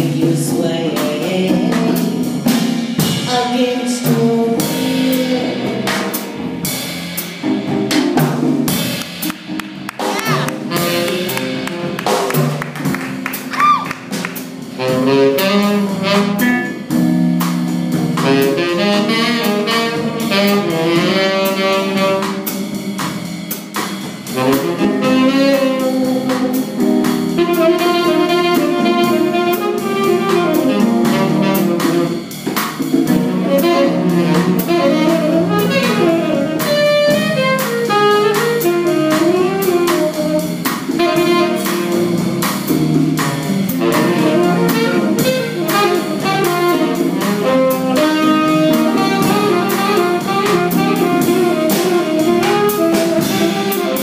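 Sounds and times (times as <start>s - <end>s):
conga drums: 0.0s - 54.0s
small jazz band: 0.0s - 54.0s
tenor saxophone solo: 10.0s - 17.2s, 18.2s - 22.9s, 24.3s - 32.4s, 33.1s - 43.0s, 43.6s - 54.0s.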